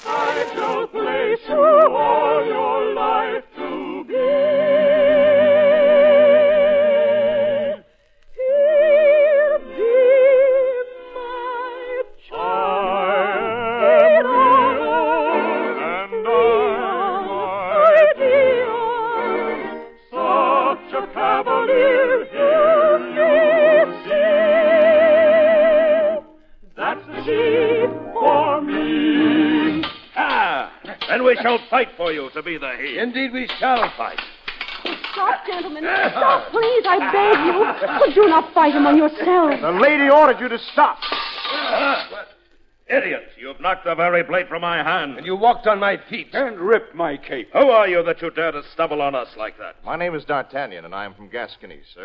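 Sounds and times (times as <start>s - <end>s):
operetta singing: 0.0s - 32.9s.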